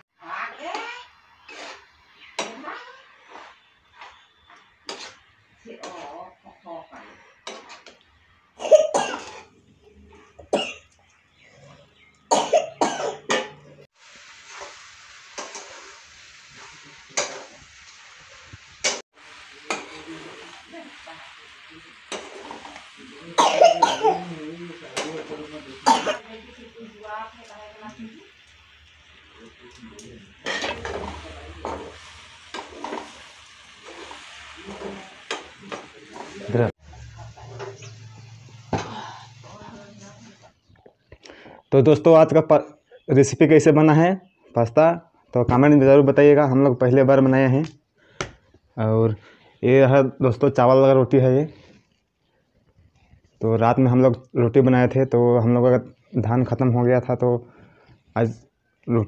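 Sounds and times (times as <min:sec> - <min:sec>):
food sizzling in a pan: 0:00.0 - 0:40.7, 0:45.6 - 0:58.4
spatula scraping metal pan: 0:00.6 - 0:06.4, 0:07.0 - 0:08.0, 0:09.2 - 0:09.6, 0:14.4 - 0:17.6, 0:21.9 - 0:23.1, 0:24.3 - 0:25.8, 0:30.0 - 0:36.7
person coughing: 0:08.6 - 0:09.4, 0:12.3 - 0:13.6, 0:23.4 - 0:24.3, 0:25.8 - 0:26.2
metal spatula clinking on pan: 0:30.4 - 0:31.9.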